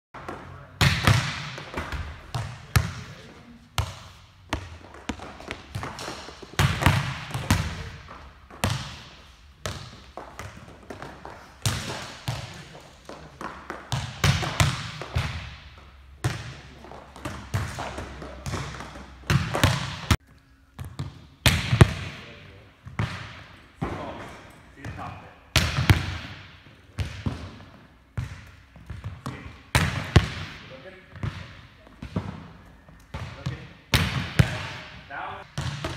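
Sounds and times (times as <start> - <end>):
hand spiking volleyball: 0.2 - 3.1, 3.8 - 24.2, 24.9 - 35.9
ball bouncing off floor: 3.8 - 15.6.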